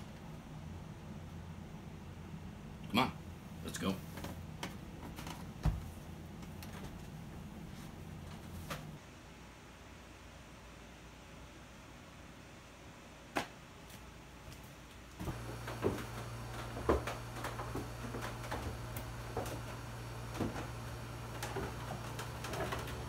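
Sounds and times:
steady low hum: 0.0 - 11.8, 15.0 - 23.0
footsteps on wooden stairs: 15.2 - 23.0.

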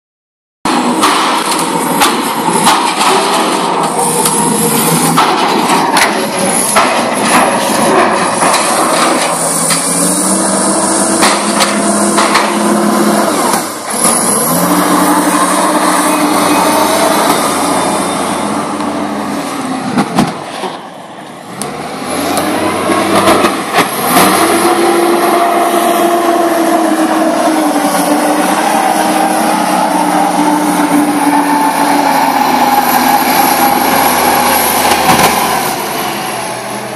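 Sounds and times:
steel pipes clanking: 0.7 - 19.1
engine revving: 0.7 - 20.2, 21.5 - 36.9.

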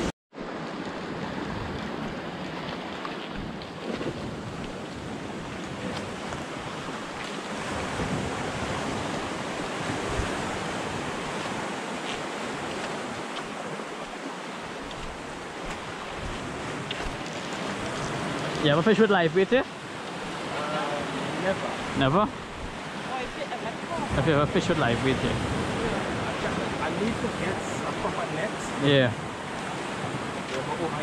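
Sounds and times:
waves washing over rocks: 0.0 - 31.0
wind buffeting microphone: 1.0 - 13.7.

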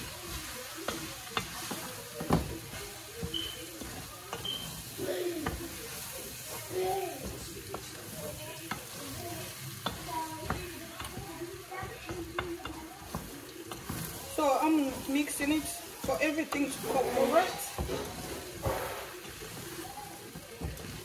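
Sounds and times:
light frying sizzle: 0.0 - 21.0
spoon scraping through food: 0.3 - 11.2.

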